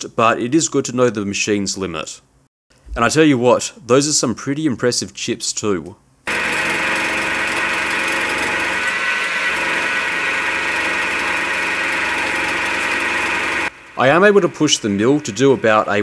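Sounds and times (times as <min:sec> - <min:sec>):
milling machine cutting steel: 0:06.3 - 0:15.8.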